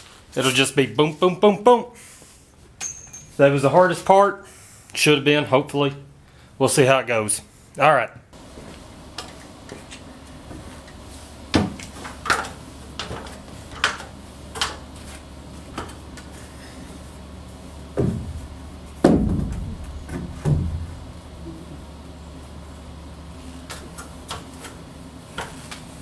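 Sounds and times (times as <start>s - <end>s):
heavier thumps on wood: 17.9s - 21.0s
sharp wooden knocks: 19.0s - 20.9s.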